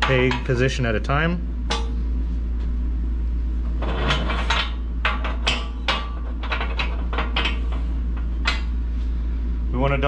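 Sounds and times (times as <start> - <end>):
metal clanks and clinks: 3.8 - 8.7.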